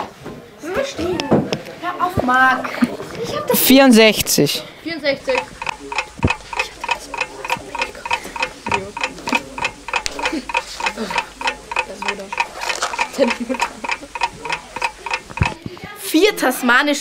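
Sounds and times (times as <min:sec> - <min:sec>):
faint voices murmuring: 0:00.0 - 0:17.0
rapid clock ticking: 0:05.1 - 0:17.0.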